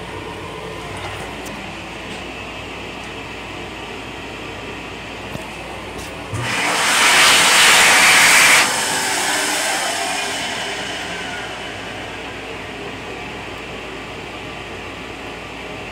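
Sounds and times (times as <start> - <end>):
hand dryer blowing: 5.6 - 14.2
motor winding down: 6.3 - 13.8
railcar hum: 7.7 - 15.8.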